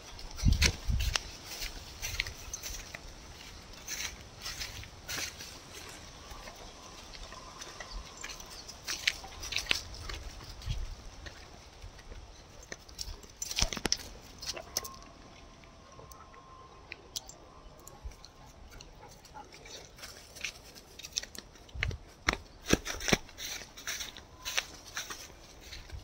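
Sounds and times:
footsteps crunching dry leaves: 0.0 - 12.1, 19.6 - 26.0.

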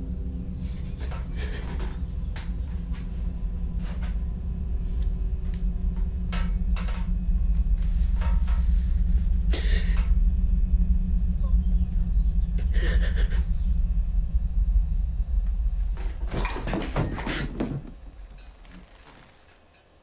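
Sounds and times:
low steady rumble: 0.0 - 19.6
scraping rustle: 17.1 - 19.8.

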